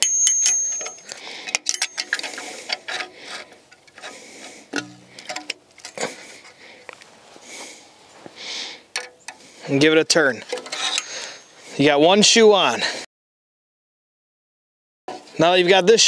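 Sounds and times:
high metallic ring: 0.0s - 2.2s, 10.8s - 11.6s
metallic clicks of hand tools: 0.0s - 6.0s, 8.9s - 9.4s, 10.4s - 11.5s.

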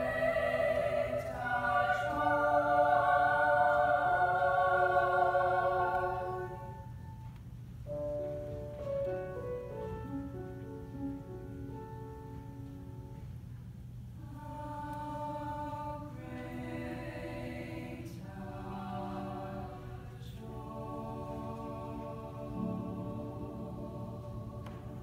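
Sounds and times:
women's choir singing: 0.0s - 6.9s, 14.2s - 25.0s.

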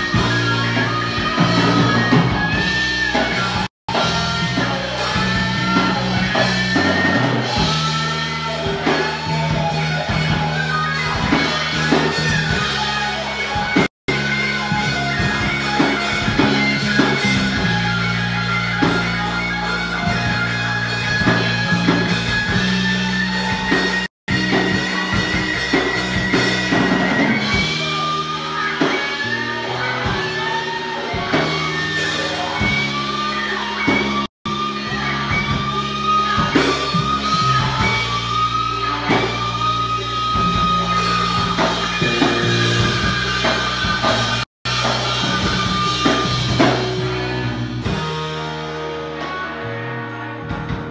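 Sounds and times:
electric guitar solo: 0.0s - 50.5s
bass notes: 0.0s - 50.9s
drums: 0.0s - 50.9s.

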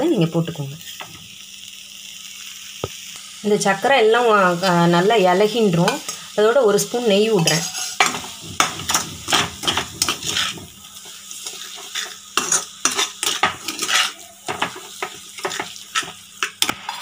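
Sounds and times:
metal spatula scraping a pan: 7.2s - 17.0s.

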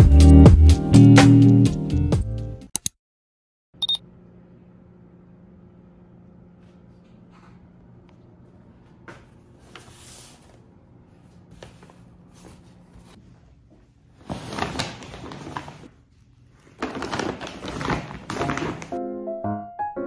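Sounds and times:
shopping bags rustling: 14.2s - 16.0s, 16.6s - 19.0s.

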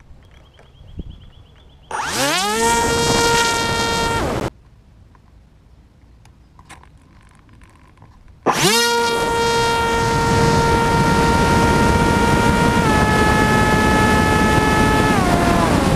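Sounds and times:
electric motor and propeller whine: 1.9s - 4.5s, 8.4s - 15.9s.

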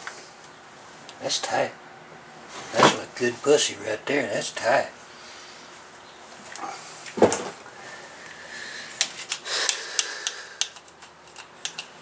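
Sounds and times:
connector clicks and rustles: 9.0s - 12.0s.

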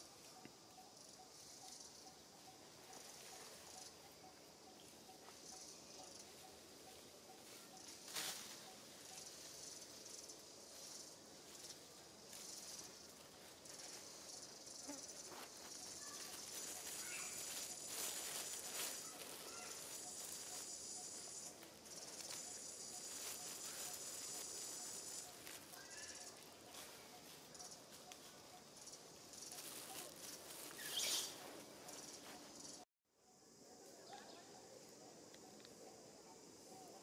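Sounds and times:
insects buzzing: 0.0s - 37.0s.

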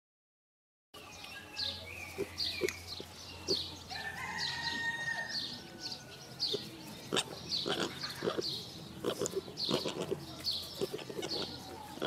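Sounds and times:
birds chirping: 1.0s - 12.0s
piglets grunting: 6.5s - 12.0s.

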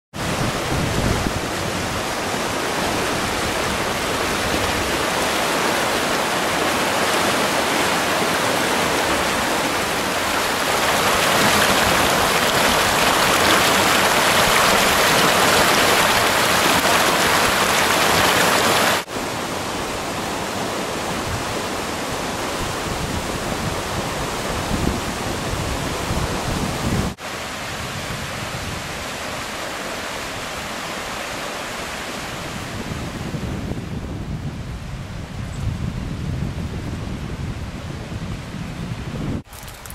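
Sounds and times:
river water rushing over rocks: 0.2s - 26.4s.

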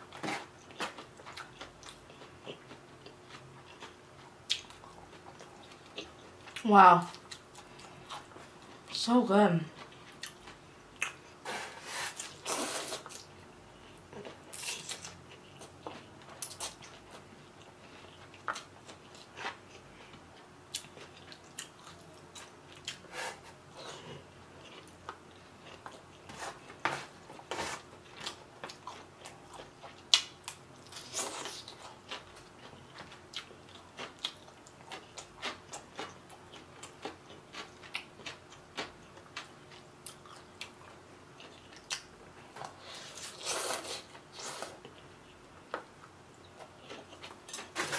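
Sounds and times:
chewing and mouth clicks: 0.6s - 8.9s, 9.7s - 11.3s, 13.0s - 23.0s, 28.0s - 43.4s, 44.4s - 47.7s
slurping noodles: 11.5s - 13.2s.

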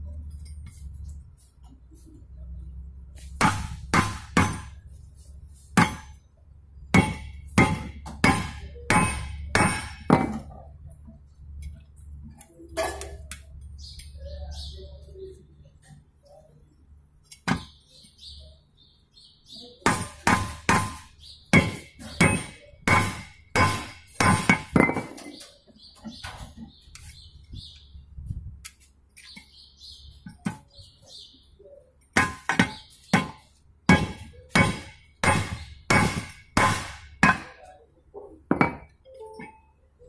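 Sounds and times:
hammer clanking on steel: 3.4s - 4.8s, 5.8s - 6.2s, 6.9s - 10.5s, 19.9s - 25.4s, 32.2s - 37.6s.

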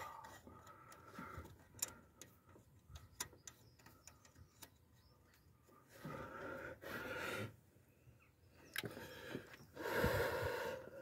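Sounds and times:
spanner clicking on engine parts: 0.0s - 5.5s
heavy breaths: 5.9s - 7.6s, 8.8s - 11.0s.

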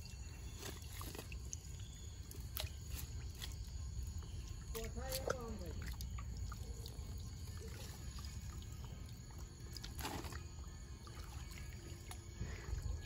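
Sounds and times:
trickling water: 0.0s - 13.0s
small clicks of wet net: 0.6s - 3.7s.

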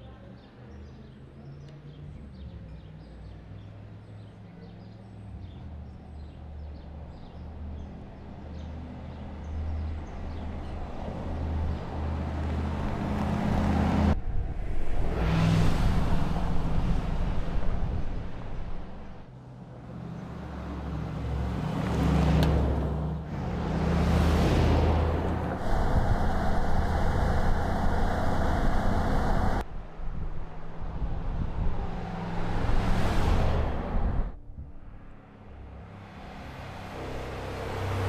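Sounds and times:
suv engine running: 21.8s - 29.6s.

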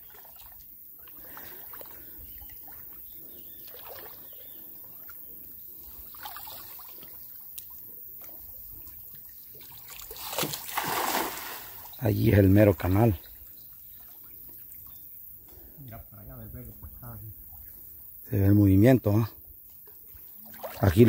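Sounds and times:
splashing water: 0.0s - 5.2s, 5.9s - 12.1s, 20.2s - 21.0s
water trickling and sloshing: 0.0s - 15.8s, 16.4s - 21.0s.

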